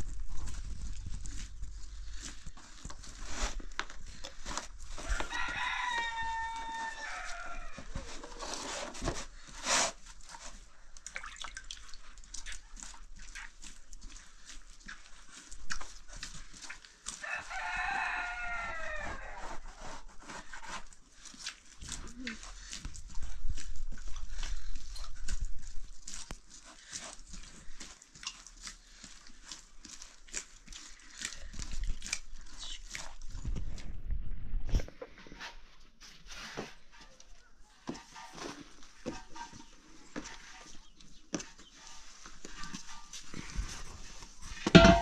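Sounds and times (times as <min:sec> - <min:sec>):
rooster crowing: 0:05.0 - 0:07.9, 0:17.2 - 0:19.4
sharp knocks and clatter: 0:44.6 - 0:45.0.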